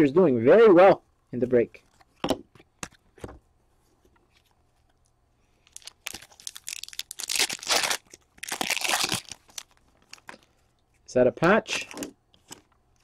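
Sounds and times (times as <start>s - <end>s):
wrapper tearing and crinkling: 5.6s - 10.5s.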